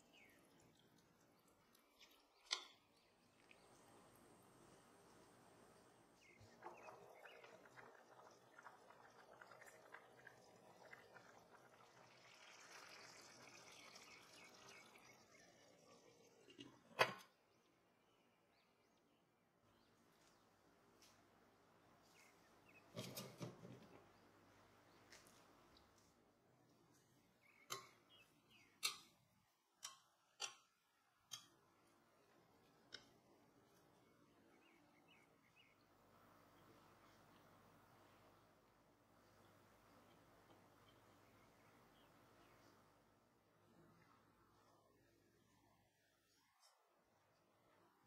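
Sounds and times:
pot of food boiling: 0.0 - 17.2.

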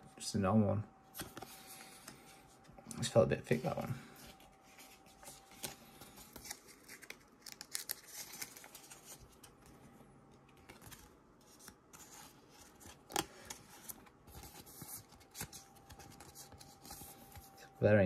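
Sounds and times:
plastic card sleeve crinkling: 3.5 - 17.6.

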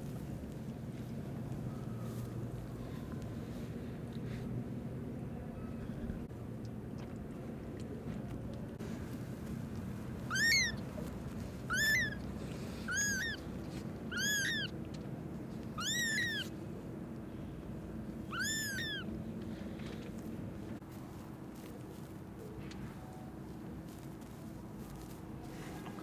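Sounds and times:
low steady background noise: 0.0 - 26.0
kitten mewing: 10.3 - 10.8, 11.7 - 12.2, 12.8 - 13.4, 14.1 - 14.8, 15.8 - 16.5, 18.3 - 19.1.

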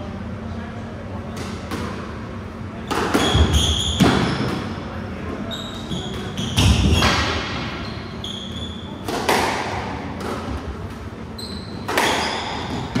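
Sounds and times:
racket smacking squash ball: 9.0 - 10.8, 11.8 - 13.0
shoes squeaking on wooden floor: 11.4 - 13.0.

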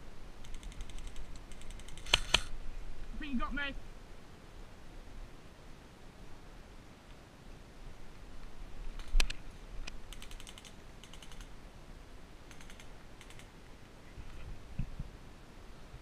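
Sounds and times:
airsoft rifle fire: 1.6 - 2.5.

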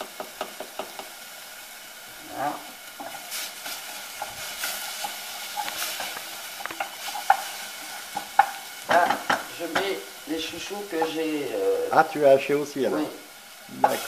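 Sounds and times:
spoon knocking a pan: 0.0 - 1.2, 4.2 - 10.0, 10.9 - 11.3, 13.8 - 14.0
food sizzling in a pan: 0.0 - 14.0
wooden spoon scraping a pan: 2.2 - 11.6.

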